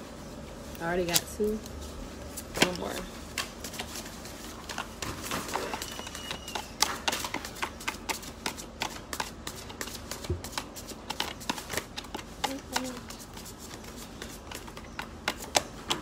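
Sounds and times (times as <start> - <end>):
cards being shuffled by hand: 0.5 - 16.0.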